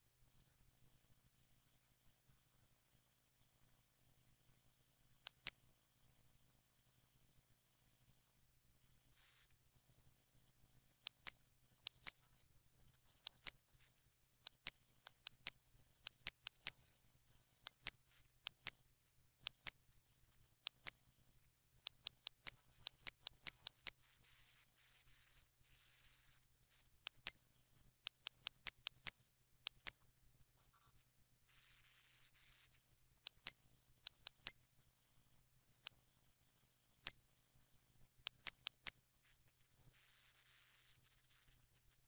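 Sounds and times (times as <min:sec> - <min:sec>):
soft background hiss: 0:00.0 - 0:42.0
computer mouse buttons clicking: 0:05.2 - 0:05.6, 0:11.0 - 0:12.4, 0:13.0 - 0:16.8, 0:17.6 - 0:18.8, 0:19.4 - 0:19.8, 0:20.4 - 0:21.0, 0:21.8 - 0:27.4, 0:28.0 - 0:30.0, 0:31.5 - 0:34.6, 0:38.2 - 0:41.9.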